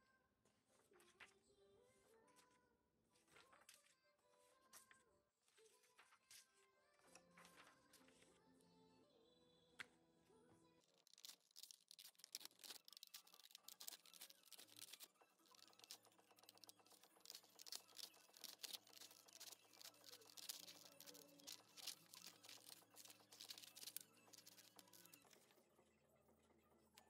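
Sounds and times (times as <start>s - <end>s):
paper rustling: 11.0s - 25.4s
scissors snipping paper: 11.0s - 25.4s.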